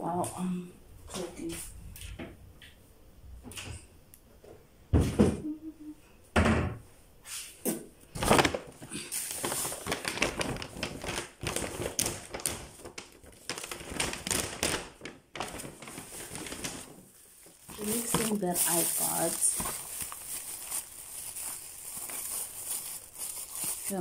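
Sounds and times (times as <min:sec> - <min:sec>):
groceries clattering and rustling: 0:07.7 - 0:24.0.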